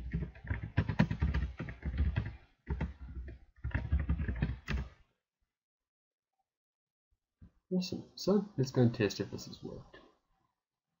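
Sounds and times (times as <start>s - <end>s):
fast typing on keyboard: 0.0s - 5.0s.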